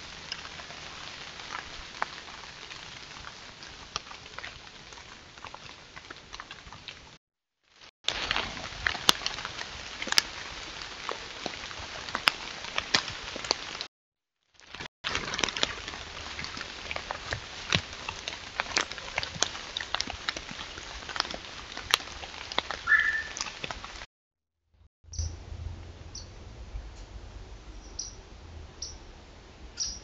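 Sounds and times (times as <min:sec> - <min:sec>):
footsteps in dry leaves: 0:00.0 - 0:07.1, 0:07.7 - 0:13.8, 0:14.6 - 0:24.0
short high chirp: 0:22.9 - 0:23.3.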